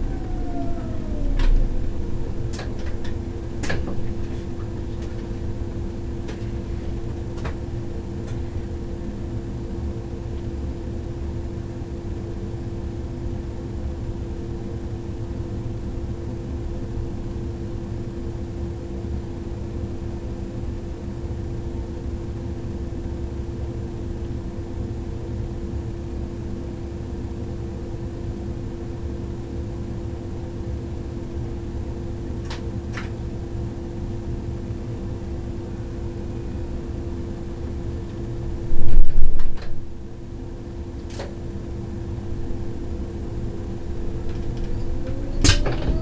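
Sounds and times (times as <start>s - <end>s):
train motor whine: 0.0s - 7.6s, 43.4s - 46.0s
train equipment humming: 0.0s - 8.7s, 40.8s - 46.0s.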